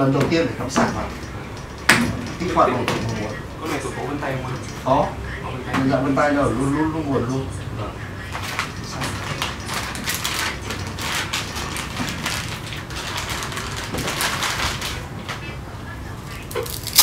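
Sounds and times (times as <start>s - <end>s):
plastic bags crinkling: 8.4s - 15.1s, 16.5s - 17.0s.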